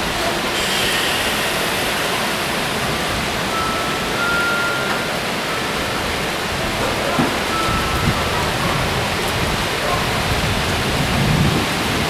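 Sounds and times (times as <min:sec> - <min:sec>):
electric train pulling out: 0:00.0 - 0:10.9
faint high tone: 0:00.6 - 0:06.0.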